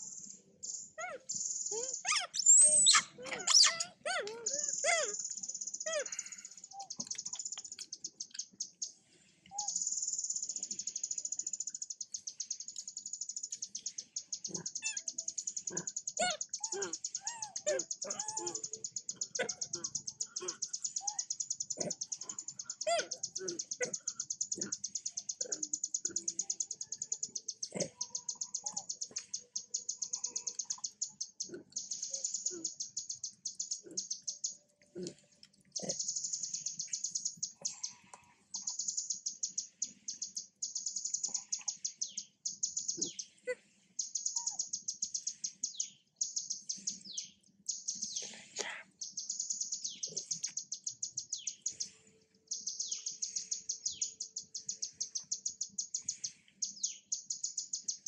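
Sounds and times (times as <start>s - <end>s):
rapid high-pitched animal chirping: 0.0s - 58.0s
faint squeaks and clicks: 1.0s - 8.7s.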